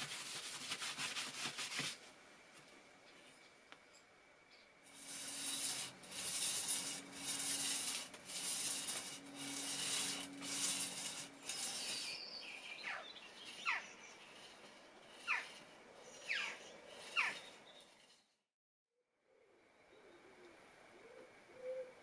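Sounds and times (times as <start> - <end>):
steel rasping on sandpaper: 0.0 - 2.0, 4.9 - 18.4.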